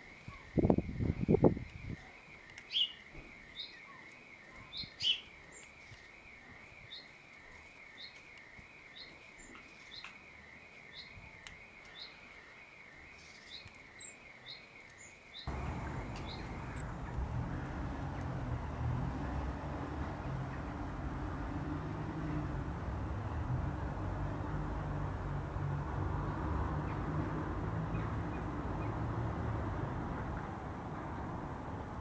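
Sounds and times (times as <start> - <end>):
fledgling bird begging chirps: 15.5 - 17.2
low outdoor rumble: 15.5 - 32.0.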